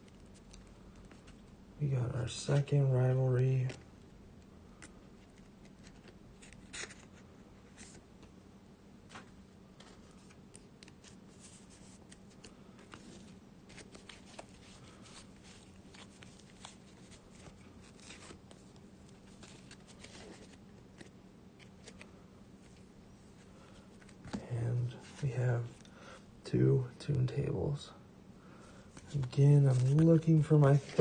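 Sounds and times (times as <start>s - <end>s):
faint steady hum: 0.0s - 31.0s
cards rustling and clicking on table: 29.0s - 31.0s.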